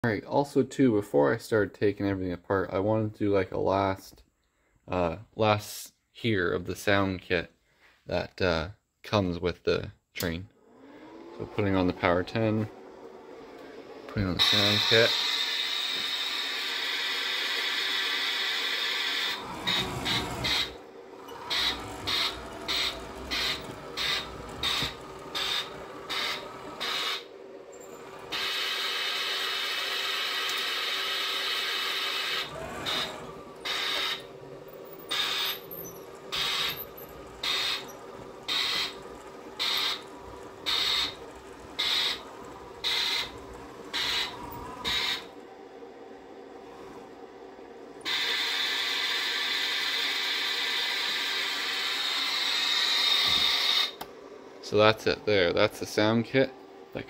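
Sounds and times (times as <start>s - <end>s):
electronic steam chuffs: 10.6s - 57.0s
steady steam hiss: 13.7s - 20.7s, 48.0s - 54.0s.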